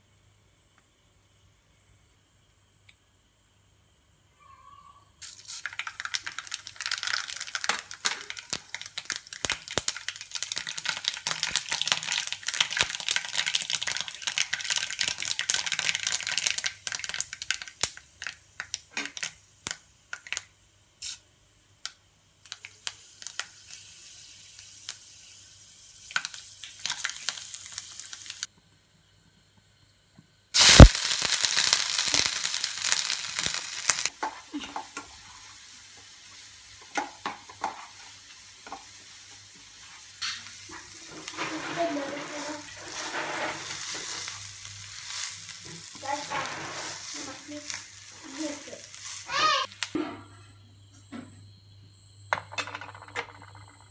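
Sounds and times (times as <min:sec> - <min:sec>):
hot oil crackling and spitting: 0:05.2 - 0:28.7, 0:30.5 - 0:50.0
loud sizzle of frying spices: 0:05.2 - 0:50.0.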